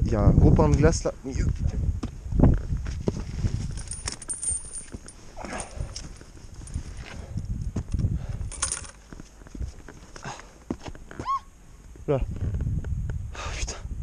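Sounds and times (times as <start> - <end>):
footsteps scrambling over rock: 1.5 - 11.4
light metallic clinks: 3.8 - 6.9, 7.9 - 9.0.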